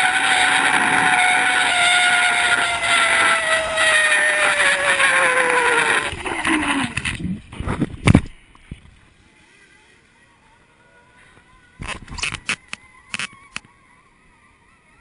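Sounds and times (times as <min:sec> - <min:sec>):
zip line pulley whining: 0:00.0 - 0:07.2, 0:11.8 - 0:13.7.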